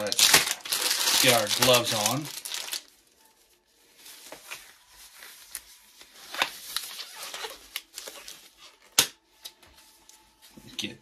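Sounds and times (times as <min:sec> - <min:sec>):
gloves rubbery rustling and stretching: 0:00.0 - 0:08.9.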